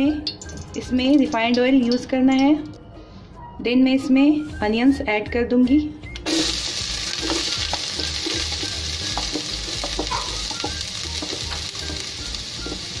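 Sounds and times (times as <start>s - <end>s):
onion sizzling in hot oil: 6.2s - 13.0s
small crackles of frying: 6.2s - 13.0s.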